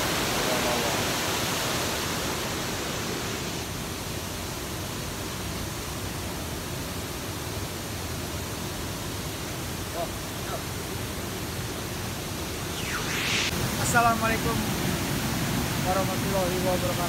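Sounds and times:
waterfall rushing: 0:00.0 - 0:03.7.

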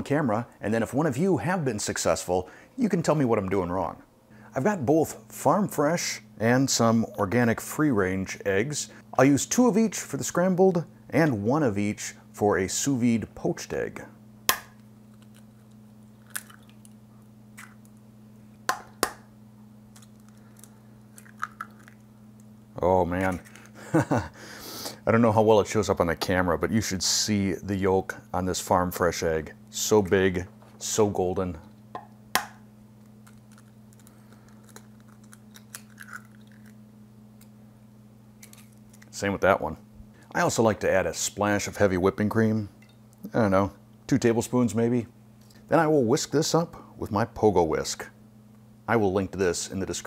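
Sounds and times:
faint steady hum: 0:00.0 - 0:50.0
eggshells cracking: 0:14.5 - 0:17.0, 0:17.6 - 0:18.0, 0:19.9 - 0:22.1, 0:32.4 - 0:36.8.

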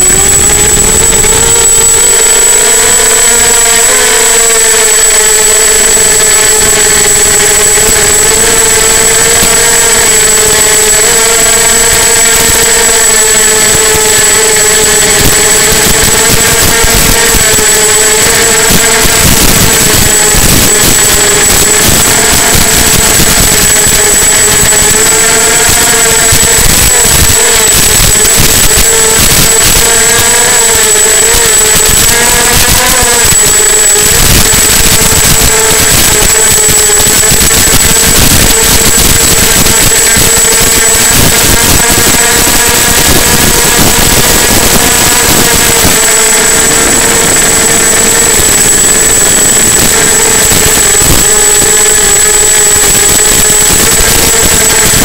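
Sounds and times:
quadcopter motors buzzing: 0:00.0 - 0:55.0
loud steady hiss: 0:37.0 - 0:46.0.

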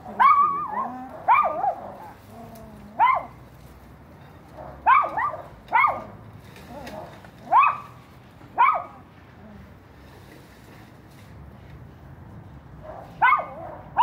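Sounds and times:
dog barking: 0:00.1 - 0:01.8, 0:03.0 - 0:03.4, 0:04.6 - 0:06.1, 0:07.5 - 0:08.0, 0:08.6 - 0:09.0, 0:12.8 - 0:14.0.

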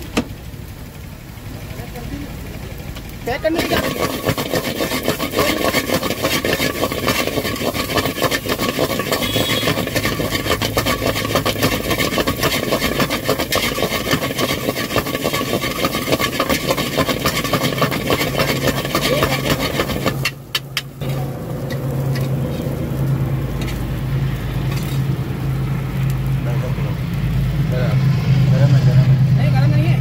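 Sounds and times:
low engine-like hum: 0:00.0 - 0:30.0
metal spatula scraping iron pan: 0:03.4 - 0:22.7, 0:23.6 - 0:23.8, 0:24.6 - 0:25.1.

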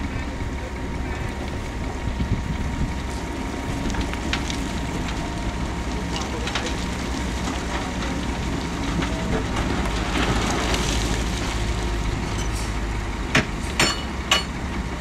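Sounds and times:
diesel machinery rumbling: 0:00.0 - 0:15.0
sharp metal clanks: 0:13.8 - 0:14.6.

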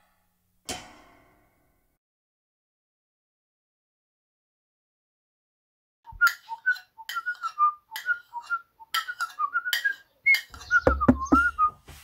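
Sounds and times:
person whistling a tune: 0:06.1 - 0:11.8.

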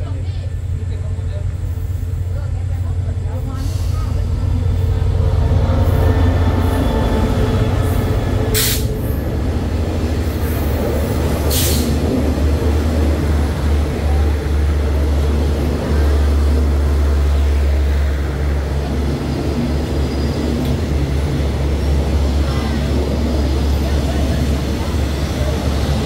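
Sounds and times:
diesel train rumbling: 0:00.0 - 0:26.0
short hisses: 0:08.6 - 0:09.0, 0:11.5 - 0:12.0.

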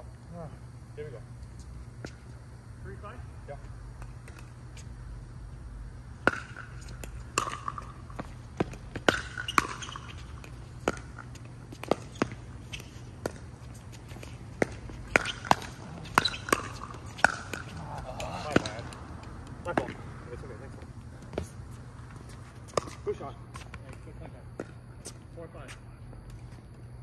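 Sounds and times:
ball bouncing on hard court: 0:06.2 - 0:20.0, 0:22.7 - 0:23.6.

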